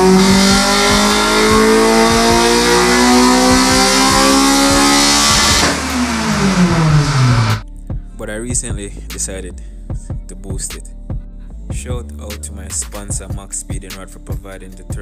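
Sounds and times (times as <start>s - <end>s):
car engine revs climbing under load: 0.0s - 7.6s.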